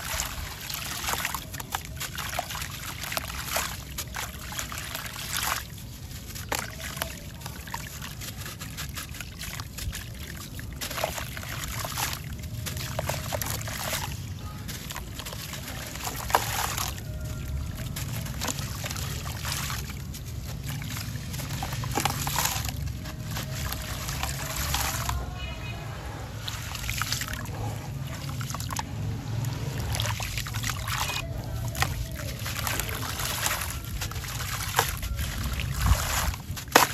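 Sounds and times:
sand crumbs splashing into water: 0.0 - 25.5
water sloshing: 0.0 - 36.9.

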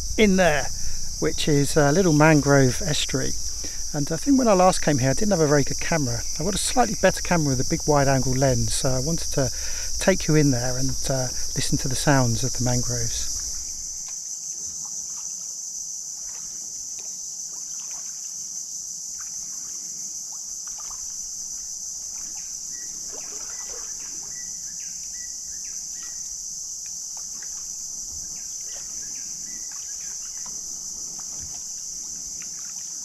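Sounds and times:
insects droning: 0.0 - 33.0
paddles dripping and splashing: 0.7 - 11.6, 17.5 - 18.4, 20.6 - 24.4, 27.0 - 33.0.

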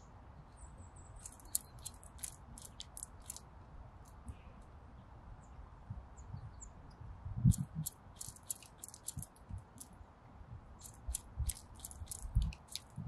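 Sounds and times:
woodpecker pecking seeds: 1.2 - 3.5, 7.5 - 9.9, 10.8 - 13.0.

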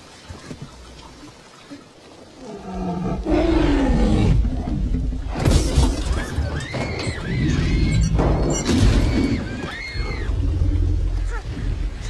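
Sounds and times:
dinosaur roar: 2.4 - 5.4.

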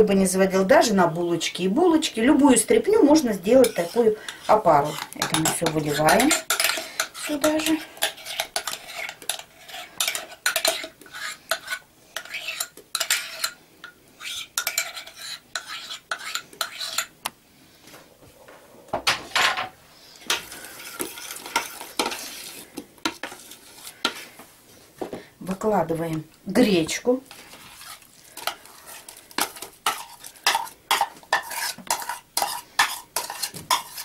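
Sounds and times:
metal spoon scraping and clinking: 3.5 - 13.6, 14.2 - 17.1, 20.2 - 24.2, 27.7 - 34.0.

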